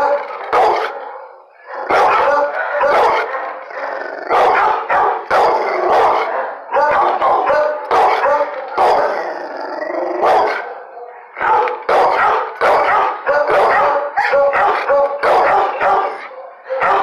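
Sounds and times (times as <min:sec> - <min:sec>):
dog barking: 0:00.0 - 0:09.3, 0:10.1 - 0:17.0
dog howling: 0:08.2 - 0:11.0.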